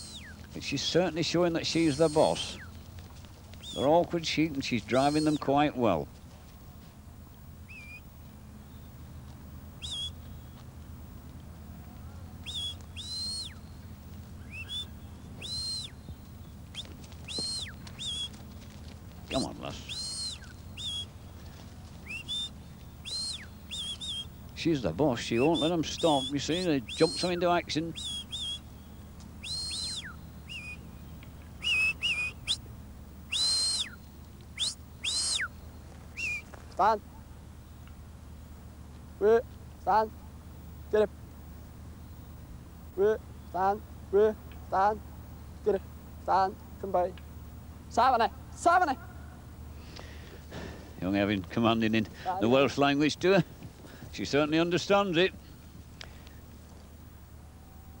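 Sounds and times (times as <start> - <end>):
short high whistles: 9.8 - 10.2, 12.4 - 13.6, 14.5 - 16.0, 16.8 - 18.4, 19.9 - 21.1, 22.0 - 24.3, 28.0 - 28.6, 29.4 - 30.8, 31.6 - 32.6, 33.3 - 34.0, 34.6 - 35.5, 36.1 - 36.5.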